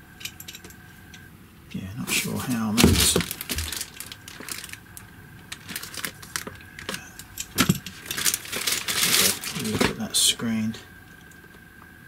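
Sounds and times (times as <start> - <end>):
plastic packaging crinkling: 2.1 - 10.2.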